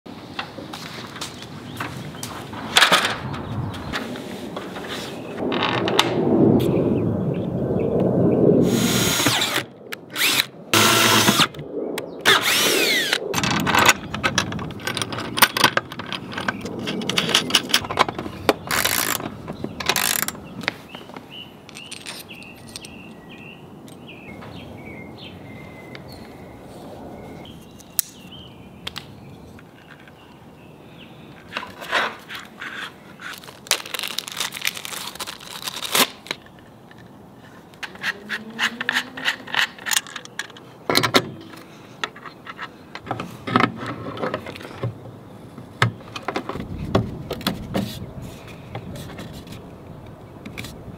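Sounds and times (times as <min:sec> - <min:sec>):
power drill spinning: 0:08.7 - 0:09.6, 0:10.2 - 0:11.5, 0:12.3 - 0:13.2
small parts clicking and rattling: 0:13.4 - 0:20.4, 0:21.7 - 0:23.0, 0:37.8 - 0:40.7.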